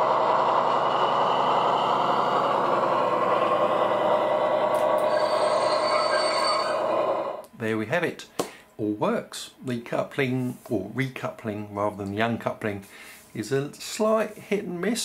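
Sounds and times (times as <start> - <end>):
model train diesel engine sound: 0.0 - 7.5
wheels rolling on rails: 0.0 - 7.5.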